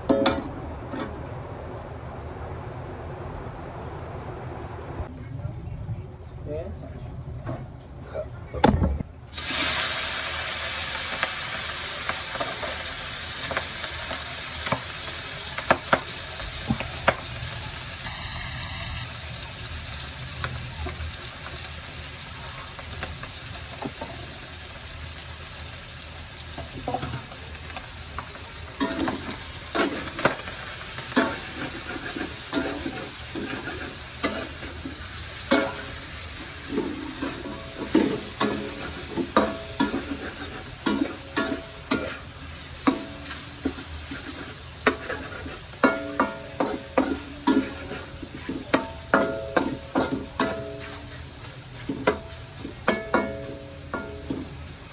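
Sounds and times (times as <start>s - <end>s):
meat sizzling in a wok: 9.3s - 54.9s
spatula scraping a pan: 28.8s - 53.6s.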